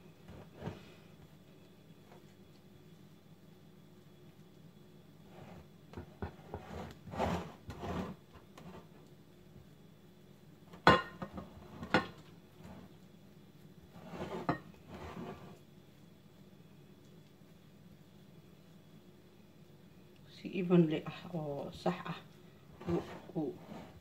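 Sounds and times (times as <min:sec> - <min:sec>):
spatula scraping dough: 0:05.3 - 0:08.9, 0:13.9 - 0:15.6, 0:22.8 - 0:24.0.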